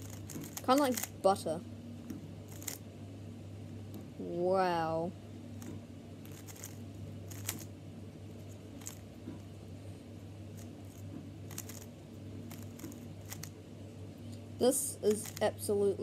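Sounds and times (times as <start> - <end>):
plastic puzzle cube clicking: 0.0 - 1.1
steady low hum: 0.0 - 16.0.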